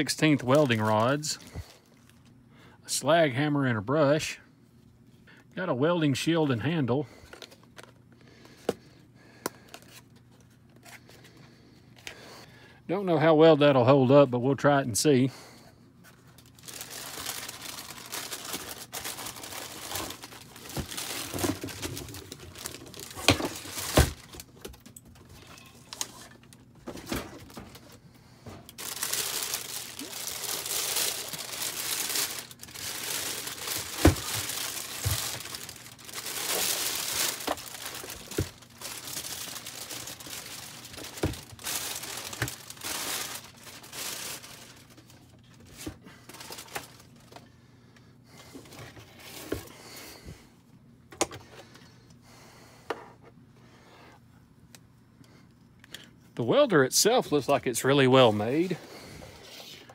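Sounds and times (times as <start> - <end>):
plastic bag crinkling: 0.0 - 2.2, 16.1 - 26.7, 28.7 - 47.4.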